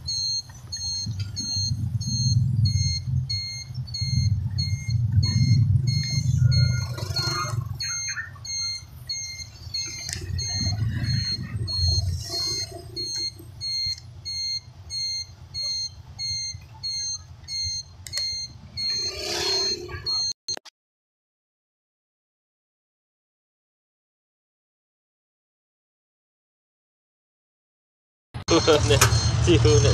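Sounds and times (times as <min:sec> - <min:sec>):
electronic beeping alert: 0:00.0 - 0:20.6, 0:28.5 - 0:29.9
engine and road rumble: 0:00.0 - 0:20.7, 0:28.4 - 0:29.9.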